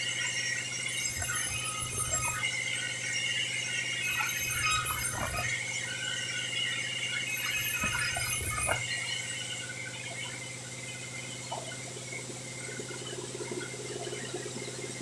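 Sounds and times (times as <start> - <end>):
bandsaw humming and whining: 0.0 - 9.2.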